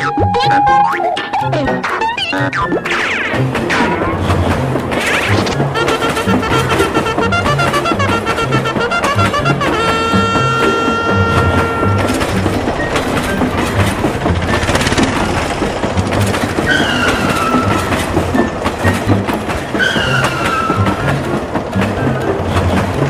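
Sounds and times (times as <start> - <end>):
train wheels clattering on rails: 2.8 - 23.0
train whistle blasts: 5.7 - 13.2.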